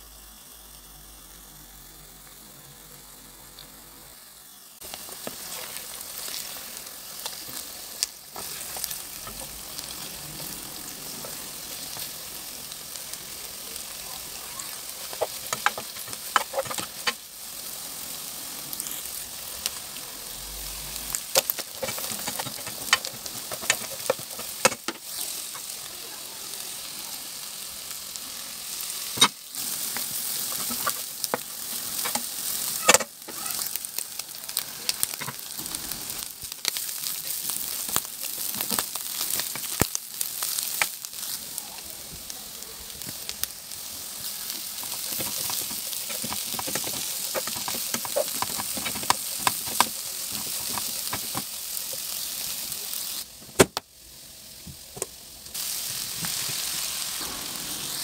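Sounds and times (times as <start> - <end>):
vegetables sizzling in a pan: 0.0 - 58.0
plastic spoon scraping a pan: 21.4 - 25.0, 44.8 - 51.4.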